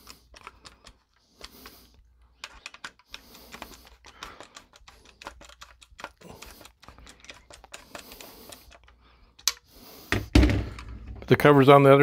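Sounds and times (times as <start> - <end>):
screwdriver clicking: 2.4 - 9.7.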